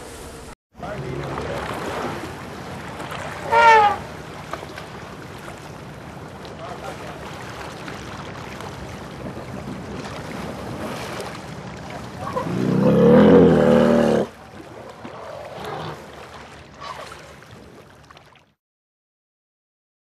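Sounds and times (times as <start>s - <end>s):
water trickling and splashing: 0.8s - 18.6s
low growling animal call: 3.4s - 4.0s, 12.2s - 14.4s.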